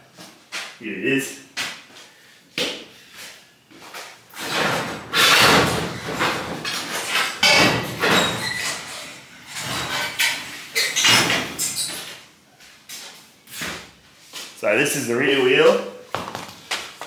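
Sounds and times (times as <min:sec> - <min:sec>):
knocks and scrapes of parts: 0:04.3 - 0:12.2.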